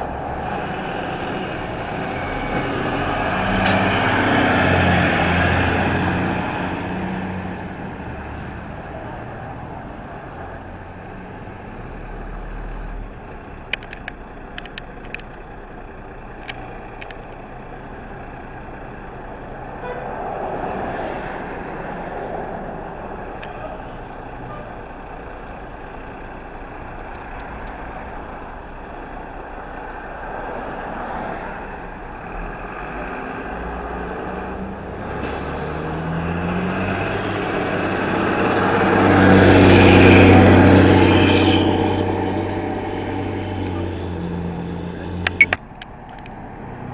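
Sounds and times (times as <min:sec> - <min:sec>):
fire truck engine passing: 0:00.0 - 0:46.9
truck engine running slowly: 0:10.0 - 0:20.0, 0:22.7 - 0:33.0
sharp clicks: 0:13.3 - 0:15.5, 0:26.2 - 0:27.8, 0:45.2 - 0:46.4.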